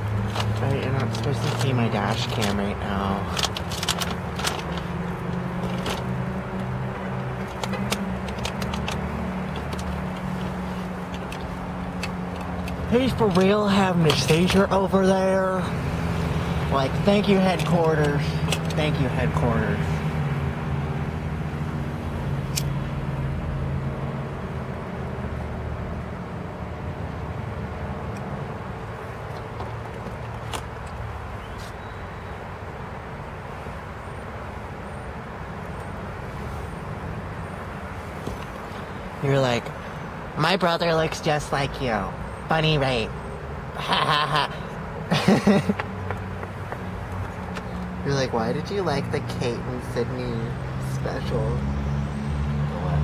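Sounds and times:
car engine idling: 0:00.0 - 0:22.4
sharp click: 0:22.5 - 0:22.8.

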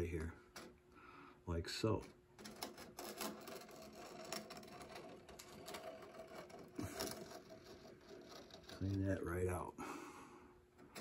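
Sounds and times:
chisel scraping wood: 0:02.5 - 0:09.2.

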